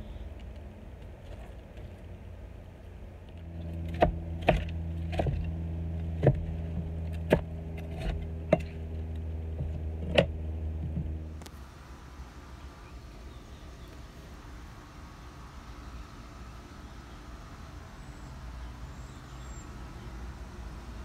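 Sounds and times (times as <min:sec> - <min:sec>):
low hum: 0:00.0 - 0:21.0
knife chopping on wooden board: 0:03.9 - 0:05.4, 0:06.2 - 0:08.8.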